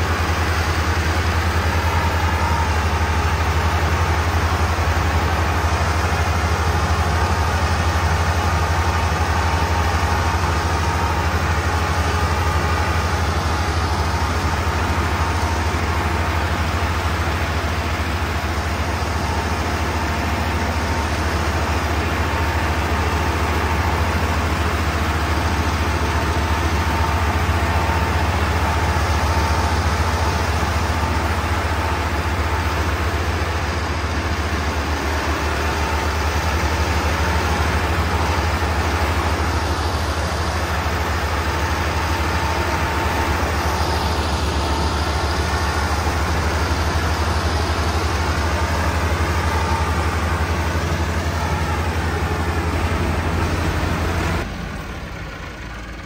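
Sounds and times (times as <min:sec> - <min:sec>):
tractor diesel engines under load: 0:00.0 - 0:56.0.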